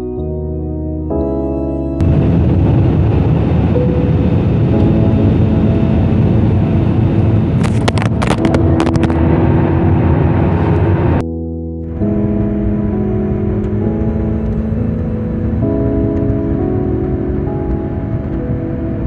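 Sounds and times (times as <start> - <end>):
soft music: 0.0 - 19.0
jet engine roar in cabin: 2.0 - 11.2.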